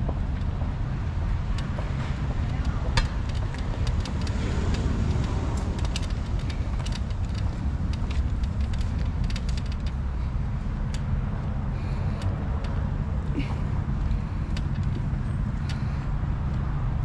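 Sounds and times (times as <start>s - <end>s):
motor traffic rumble: 0.0s - 17.0s
scattered clicks and taps: 1.5s - 10.2s.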